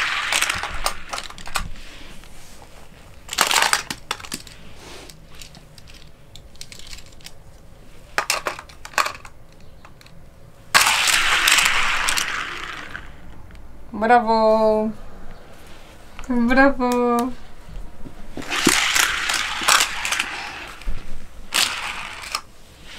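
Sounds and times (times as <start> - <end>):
toy cars rolling down plastic track: 0.0 - 1.7, 3.3 - 4.6, 8.2 - 9.4, 10.8 - 13.2, 18.4 - 22.5.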